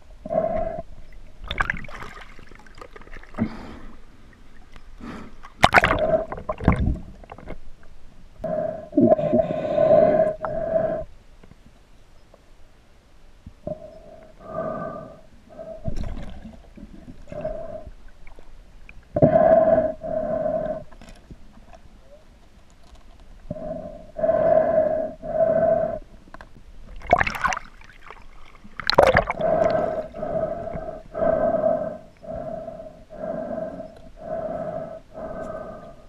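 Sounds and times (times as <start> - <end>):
rushes of water: 1.1 - 7.6, 15.7 - 19.2, 26.9 - 30.7
breathing through snorkel underwater: 3.3 - 4.1, 8.4 - 11.1, 13.7 - 16.2, 17.2 - 18.1, 19.2 - 21.0, 23.5 - 26.1, 28.9 - 36.0.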